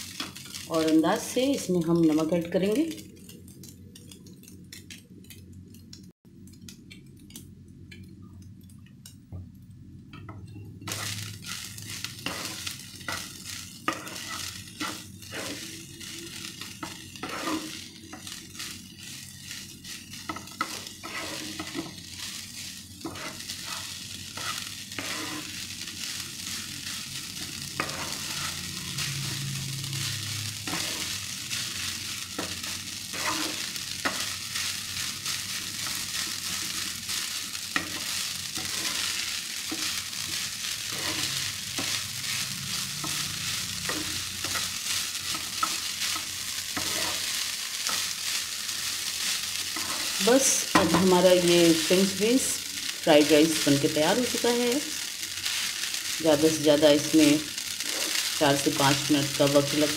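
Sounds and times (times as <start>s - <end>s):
frying sizzle: 0.0s - 59.9s
spatula scraping frying pan: 10.9s - 53.8s, 57.2s - 59.9s.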